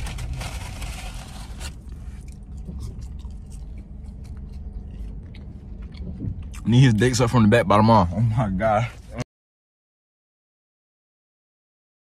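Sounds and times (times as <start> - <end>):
scraping rustle: 0.0 - 1.8
low rumble inside a car: 0.0 - 9.2.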